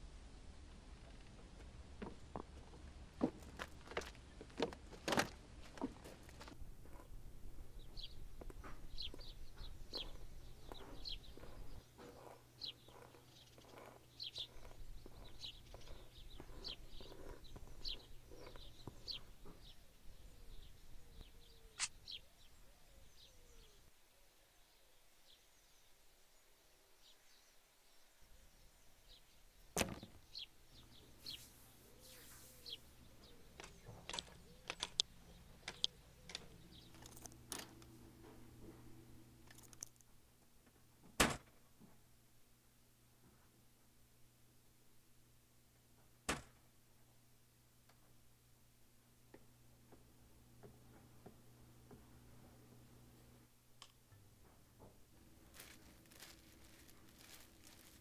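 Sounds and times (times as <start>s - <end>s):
steady low hum: 0.0s - 22.9s, 30.0s - 41.0s
birds chirping: 2.0s - 23.9s, 24.6s - 40.0s, 54.5s - 58.0s
sharp click: 21.8s - 22.0s.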